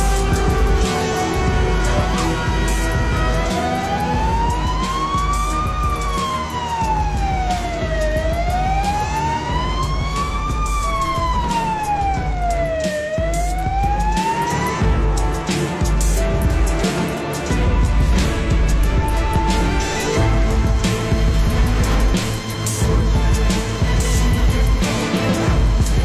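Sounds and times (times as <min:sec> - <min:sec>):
siren wailing: 0:00.0 - 0:17.2.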